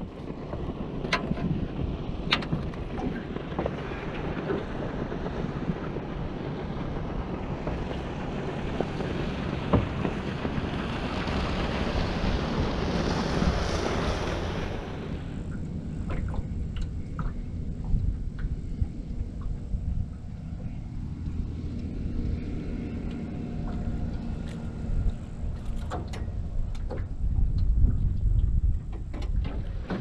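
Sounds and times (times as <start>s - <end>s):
river water: 0.0s - 30.0s
wind buffeting microphone: 0.0s - 30.0s
sharp knocks on boat: 9.6s - 10.7s.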